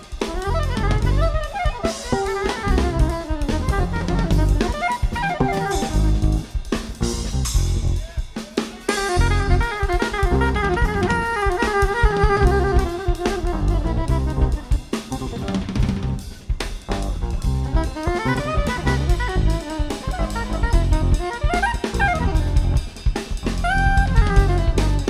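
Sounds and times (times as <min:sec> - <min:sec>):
bass: 0:00.0 - 0:08.2, 0:08.9 - 0:25.0
busy drum kit: 0:00.0 - 0:25.0
jazz fusion band playing: 0:00.0 - 0:25.0
melodic lead line: 0:00.7 - 0:06.7, 0:09.1 - 0:16.3.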